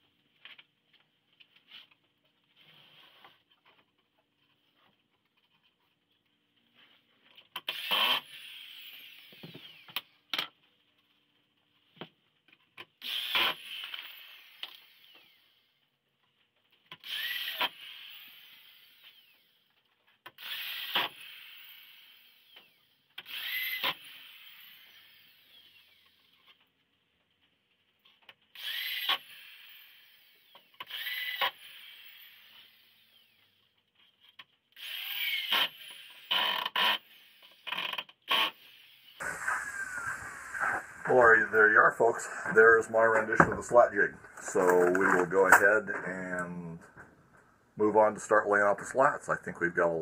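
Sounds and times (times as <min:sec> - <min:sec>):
electric drill whining: 0:07.6 - 0:10.2, 0:13.0 - 0:15.6, 0:17.0 - 0:19.6, 0:20.4 - 0:26.4, 0:28.6 - 0:33.6, 0:34.8 - 0:46.4.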